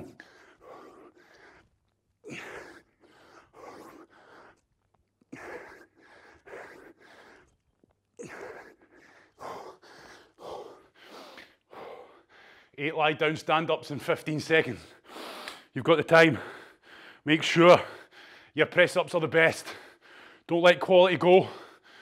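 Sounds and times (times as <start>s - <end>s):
man panting heavily: 0.0s - 4.7s, 5.3s - 7.6s, 8.2s - 12.8s, 14.8s - 15.7s, 16.3s - 17.2s, 17.8s - 18.6s, 19.6s - 20.5s, 21.4s - 22.0s.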